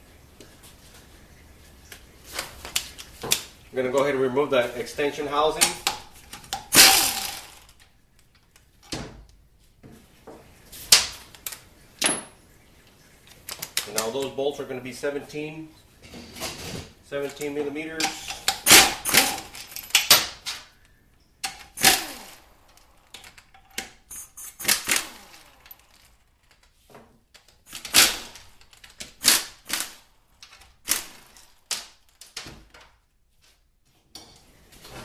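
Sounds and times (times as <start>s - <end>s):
impact wrench rattling bursts: 5.4s - 7.8s, 17.9s - 20.4s, 21.4s - 26.6s, 27.5s - 32.2s.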